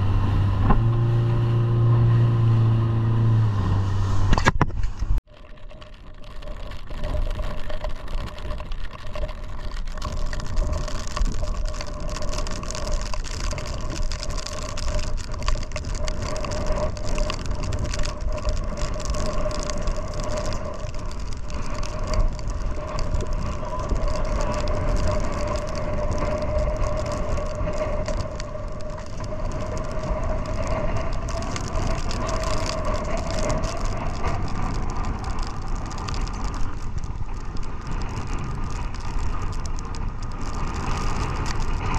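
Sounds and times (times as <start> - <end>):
outboard motor running: 0.0 - 5.2
wind and water rushing: 0.0 - 5.2.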